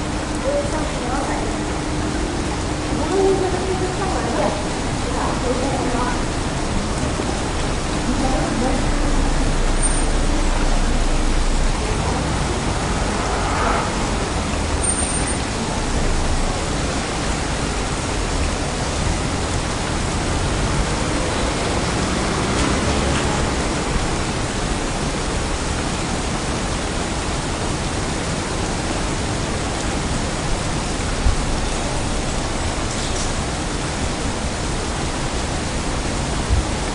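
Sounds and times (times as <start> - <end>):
rain hissing: 0.0 - 36.9
low rumble: 8.0 - 16.6.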